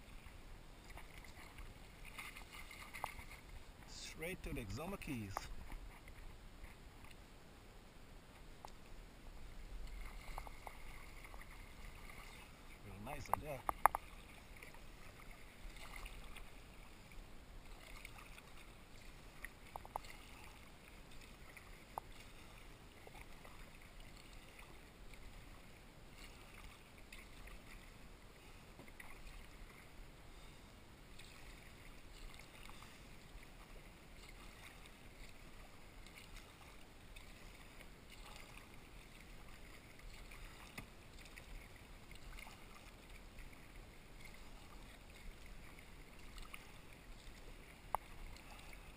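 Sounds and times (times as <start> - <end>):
paddle splashing in water: 0.0 - 7.2, 8.6 - 48.9
water rippling along hull: 0.0 - 48.9
small ticks: 13.2 - 14.8, 19.4 - 20.2, 47.9 - 48.5.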